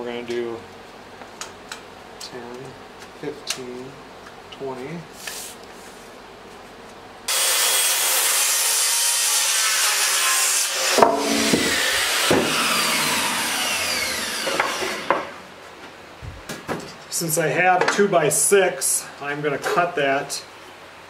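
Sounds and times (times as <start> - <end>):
circular saw cutting wood: 7.3 - 15.5
wood piece dropping: 11.0 - 12.9.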